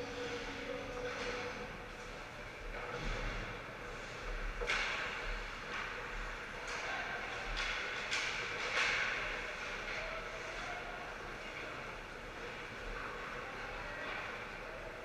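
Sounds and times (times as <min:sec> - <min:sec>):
echoing skating and play: 0:00.0 - 0:15.0
stick and puck clacks: 0:04.4 - 0:10.7.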